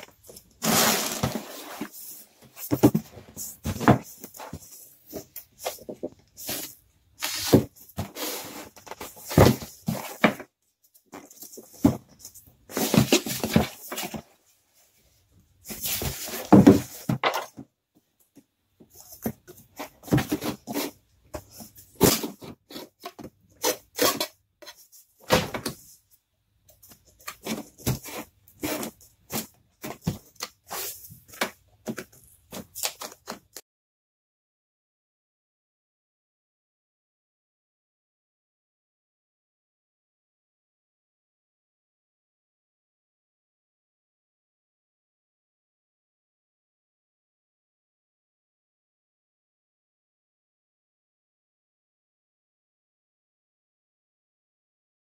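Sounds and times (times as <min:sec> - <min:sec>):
cardboard box scraping on table: 0:00.6 - 0:03.1.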